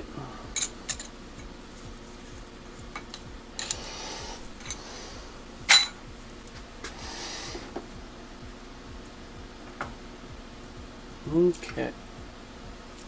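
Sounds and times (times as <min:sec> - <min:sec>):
faint steady hum: 0:00.0 - 0:13.0
metal clicks and clinks: 0:00.6 - 0:01.2.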